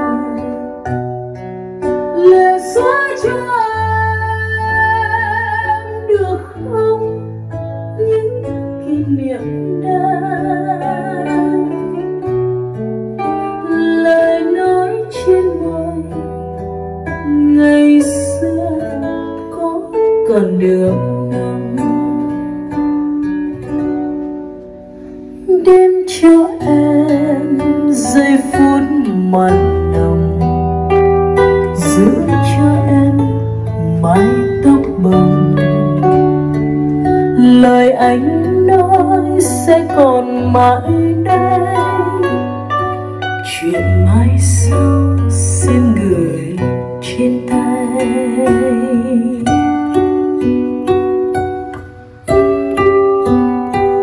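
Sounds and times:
plucked guitar notes: 0.0 - 54.0.

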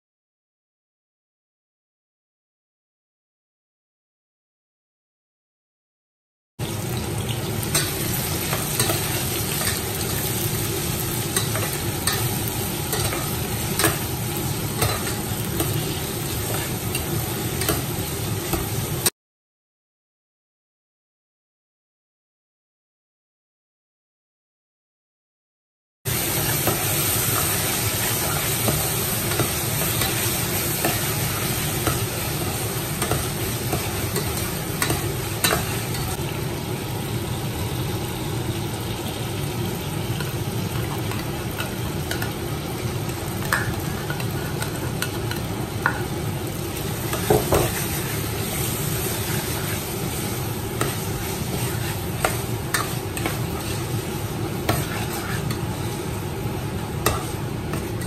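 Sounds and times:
onions and tomatoes sizzling: 6.6 - 19.1, 26.1 - 58.0
metal spoon scraping a pot: 54.7 - 55.7.

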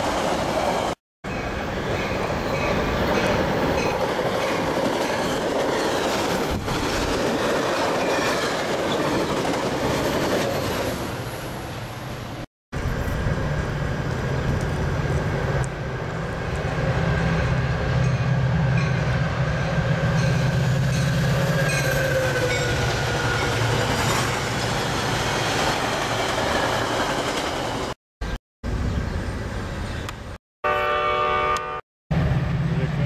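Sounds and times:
train passing at speed: 0.0 - 28.0, 30.8 - 33.0
locomotive horn chord: 30.6 - 31.8.

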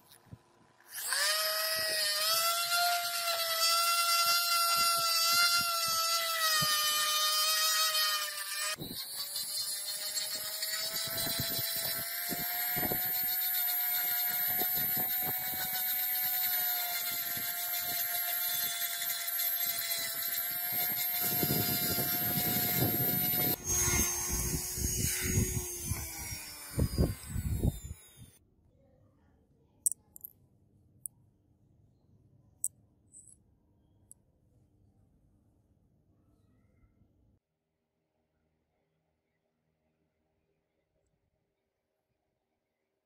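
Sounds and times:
rotary tool whine: 0.0 - 28.4.

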